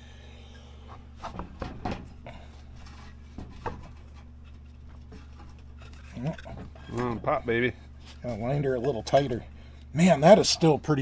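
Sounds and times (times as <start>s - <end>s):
steady low hum: 0.0s - 11.0s
small knocks: 1.2s - 2.2s, 2.8s - 7.4s.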